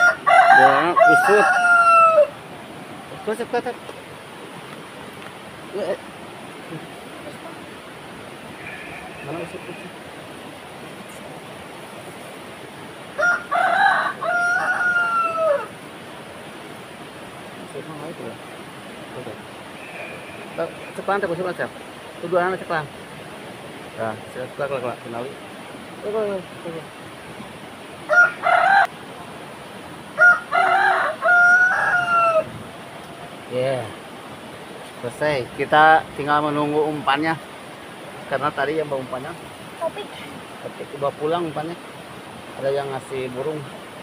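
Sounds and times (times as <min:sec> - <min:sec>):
rooster crowing: 0:00.0 - 0:02.4, 0:13.1 - 0:15.8, 0:28.1 - 0:29.1, 0:30.1 - 0:32.6
river water rushing: 0:00.0 - 0:44.0.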